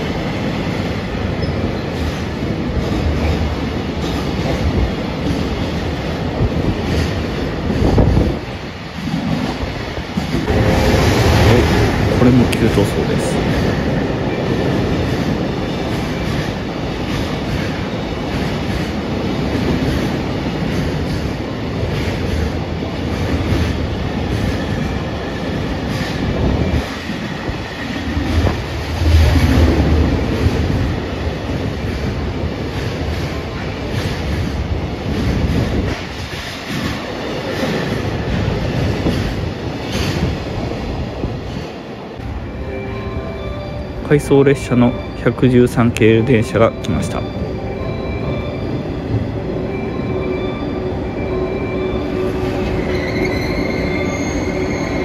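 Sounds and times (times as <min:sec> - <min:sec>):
clickety-clack of wheels on rails: 0:00.0 - 0:42.4
freight train rumbling past: 0:00.0 - 0:55.0.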